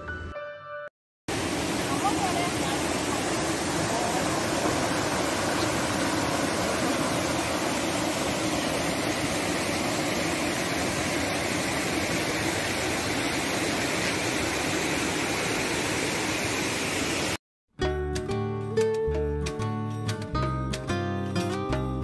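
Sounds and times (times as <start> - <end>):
stream water rushing over rocks: 1.3 - 17.4.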